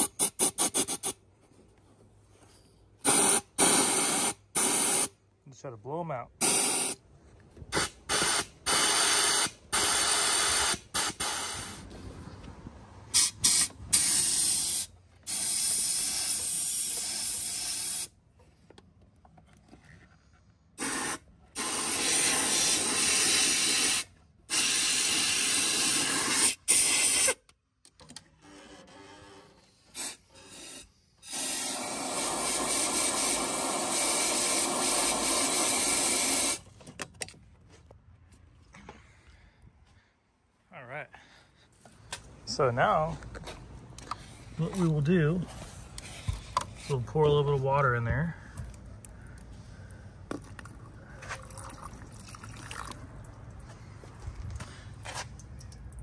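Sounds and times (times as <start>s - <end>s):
compressed air blow gun hissing: 3.0s - 5.1s, 6.4s - 7.0s, 7.8s - 12.0s, 13.2s - 18.1s, 20.8s - 27.4s, 29.9s - 36.6s.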